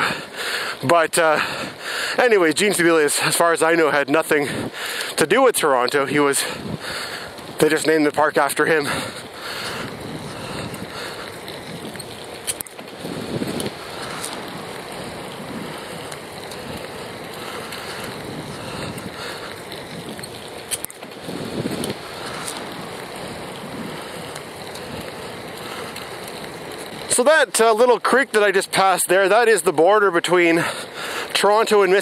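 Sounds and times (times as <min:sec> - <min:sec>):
bicycle rolling noise: 0:00.0 - 0:32.0
wind over microphone: 0:04.4 - 0:04.8, 0:05.9 - 0:27.1.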